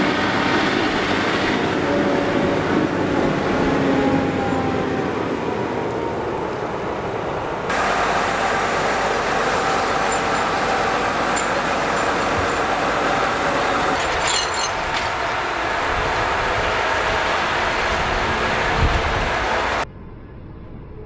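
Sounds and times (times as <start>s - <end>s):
tractor engines under load: 6.8s - 19.8s.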